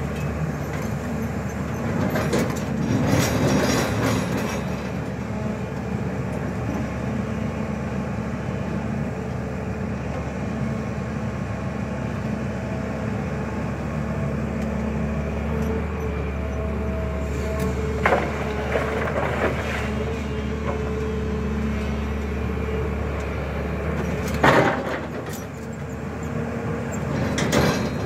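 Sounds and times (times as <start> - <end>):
excavator diesel engine running: 0.0 - 28.0.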